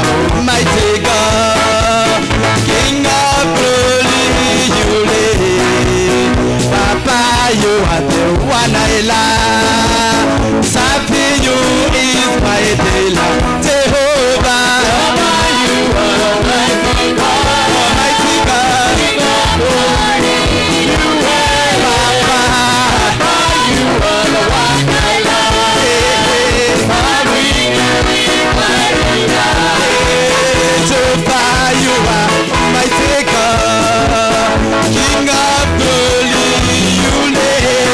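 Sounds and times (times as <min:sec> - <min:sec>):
amplified singers: 0:00.0 - 0:37.9
band with drum beat: 0:00.0 - 0:37.9.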